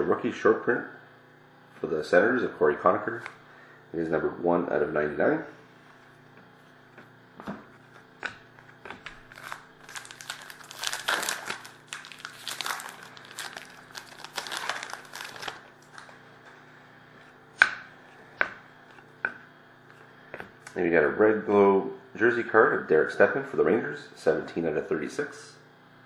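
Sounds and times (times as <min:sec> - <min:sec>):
foil card packs crinkling: 0:09.0 - 0:16.2.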